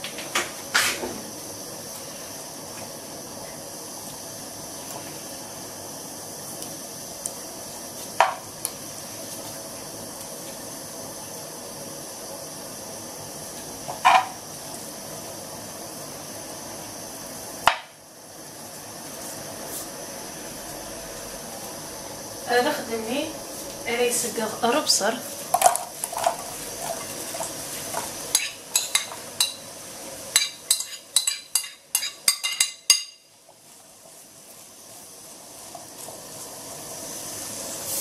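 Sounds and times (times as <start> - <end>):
butter sizzling in a frying pan: 21.4 - 38.0.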